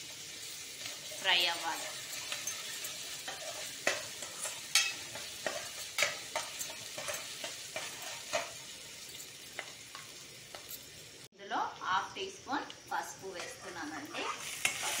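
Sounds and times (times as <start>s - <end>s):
onions sizzling in oil: 0.0s - 15.0s
spatula scraping pan: 0.2s - 10.7s, 13.3s - 15.0s.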